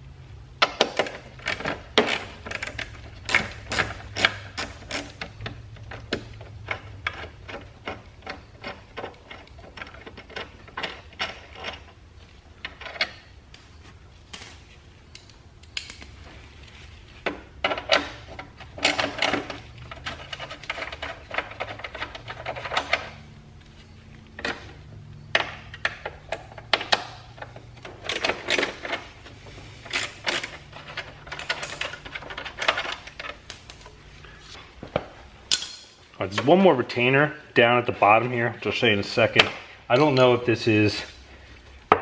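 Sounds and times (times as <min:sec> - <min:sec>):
hand ratchet clicking: 0:01.4 - 0:11.8
small metal parts clinking: 0:29.9 - 0:33.9.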